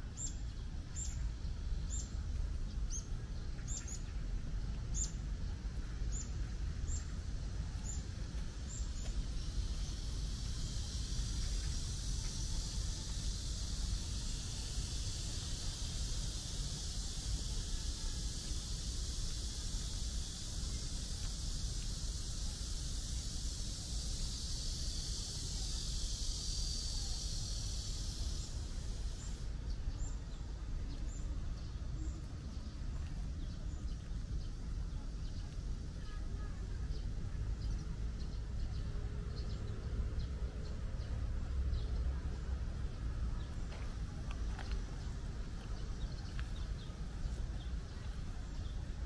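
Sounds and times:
cicada chorus: 0.0s - 49.0s
low outdoor rumble: 0.0s - 49.0s
bird chirps: 0.1s - 4.2s, 4.9s - 5.2s.

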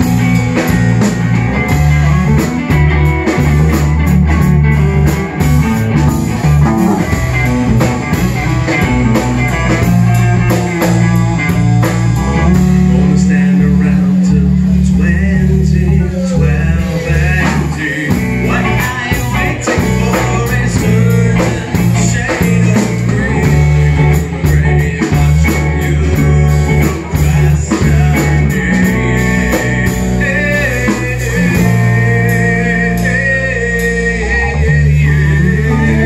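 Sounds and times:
bass guitar: 0.0s - 36.0s
drums: 0.0s - 36.0s
electric guitar: 0.0s - 36.0s
man singing into microphone: 12.4s - 36.0s.

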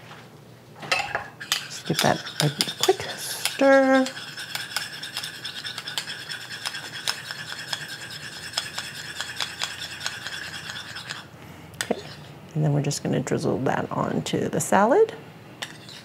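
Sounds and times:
metal spoon stirring in ceramic bowl: 0.9s - 12.3s, 15.6s - 16.0s.

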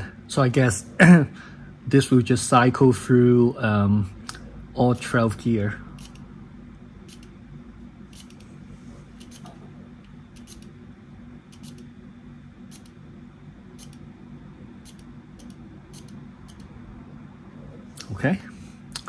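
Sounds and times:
steady low hum: 0.0s - 19.0s
electronic derailleur shifting: 6.0s - 6.2s, 9.2s - 9.5s, 10.3s - 10.7s, 11.5s - 11.9s, 12.7s - 13.0s, 13.8s - 14.0s, 14.8s - 16.7s.

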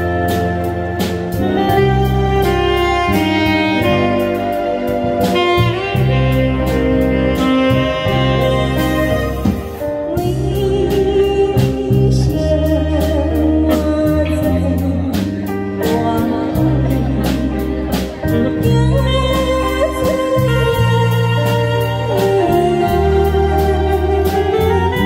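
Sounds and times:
live band playing: 0.0s - 25.0s
woman singing into a microphone: 10.1s - 17.8s, 18.4s - 25.0s.

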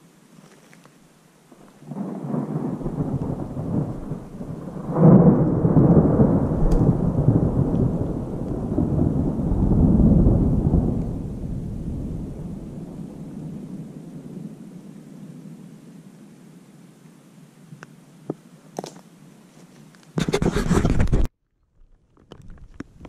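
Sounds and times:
rolling thunder: 1.8s - 14.9s.

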